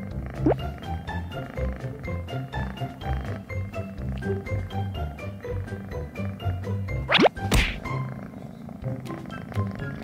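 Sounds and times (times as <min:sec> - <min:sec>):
light bouncy background music: 0:00.0 - 0:10.0
cartoon whack sound effect: 0:07.1 - 0:07.9.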